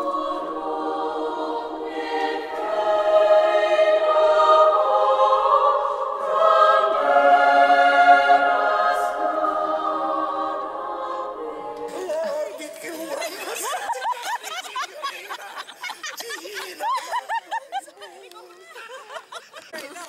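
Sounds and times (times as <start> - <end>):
choir singing sustained chords: 0.0 - 14.0.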